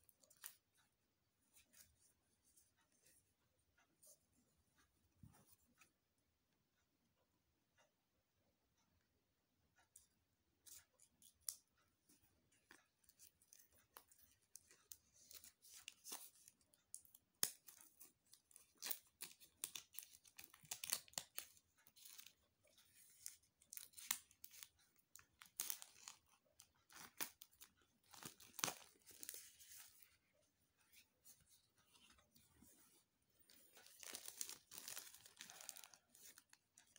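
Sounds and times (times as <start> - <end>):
plastic wrap crinkling: 26.9 - 29.8, 33.7 - 36.9
scissors snipping plastic wrap: 28.1 - 29.4, 33.9 - 36.9.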